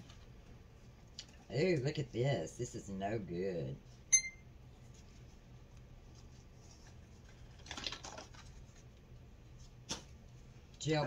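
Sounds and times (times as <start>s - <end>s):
plastic packaging rustling: 6.5s - 8.9s.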